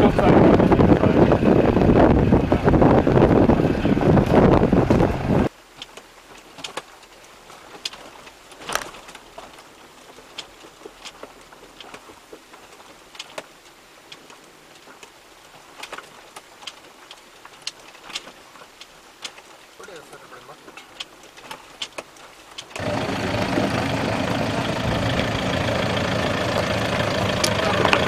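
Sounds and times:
wind and engine rush: 0.0 - 5.5, 22.7 - 28.0
faint clicks and ticks: 5.7 - 22.9.

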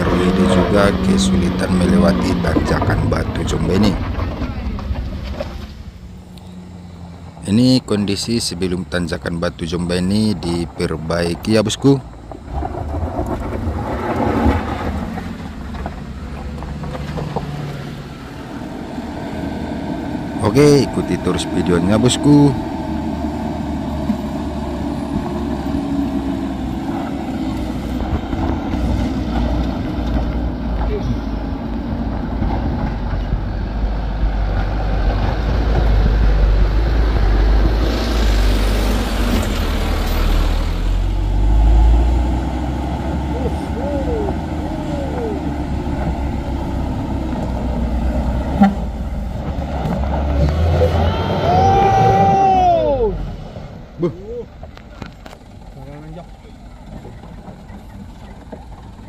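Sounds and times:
minivan engine pulling under load: 0.0 - 59.0.

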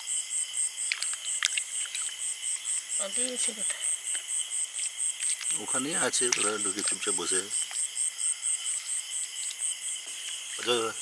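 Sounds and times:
crickets chirping: 0.0 - 11.0
hands splashing in muddy water: 0.9 - 2.2
person speaking: 5.4 - 7.6.

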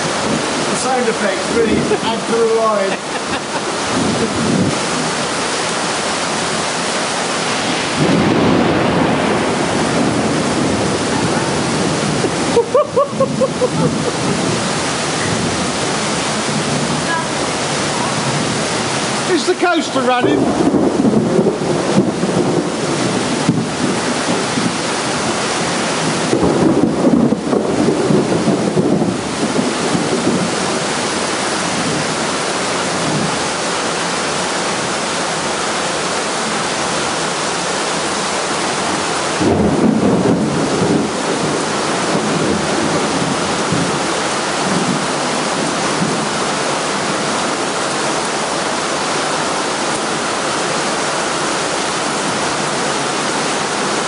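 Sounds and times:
heavy rain pouring: 0.0 - 54.0
thunder rumbling: 0.0 - 54.0.

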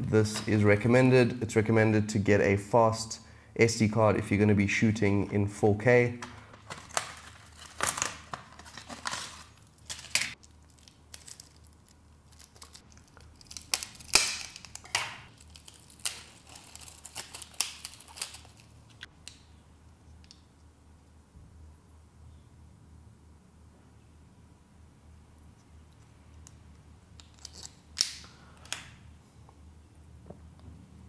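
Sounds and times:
packaging tearing and crinkling: 6.6 - 19.1, 27.2 - 28.2.

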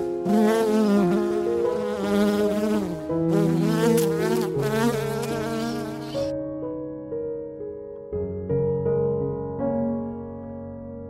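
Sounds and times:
honeybee buzzing: 0.2 - 6.3.

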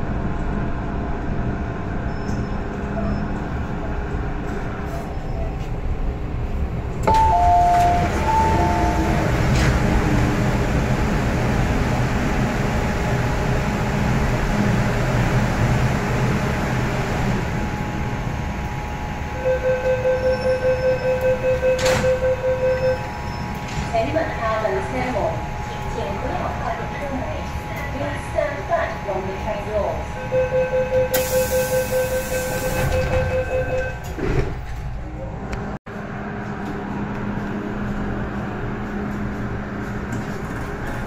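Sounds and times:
train equipment humming: 0.0 - 41.0
high and low door chime: 7.1 - 9.4
rapid door warning beeps: 7.1 - 9.5, 19.4 - 23.7, 30.0 - 34.1.

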